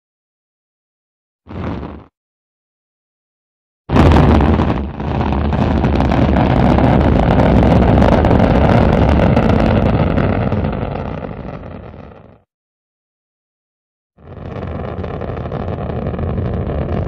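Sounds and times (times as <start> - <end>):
rocket engine firing: 3.9 - 12.2, 14.2 - 17.0.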